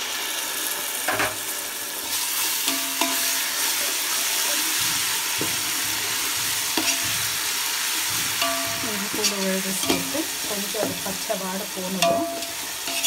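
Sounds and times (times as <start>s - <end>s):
paste sizzling in hot oil: 0.0s - 13.0s
ladle scraping and clinking on pot: 6.7s - 7.3s, 12.0s - 13.0s.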